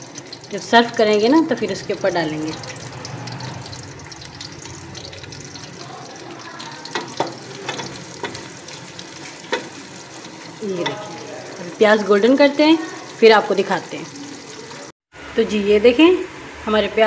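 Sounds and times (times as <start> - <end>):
onions sizzling in hot oil: 0.0 - 17.0
wooden spatula knocking pot: 6.9 - 8.5.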